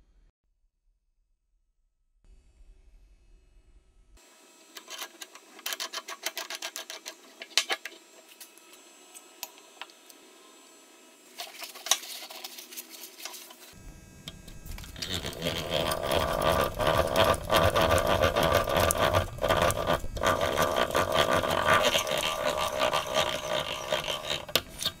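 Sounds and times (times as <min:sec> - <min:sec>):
hand drill gears whirring: 0:14.3 - 0:25.0.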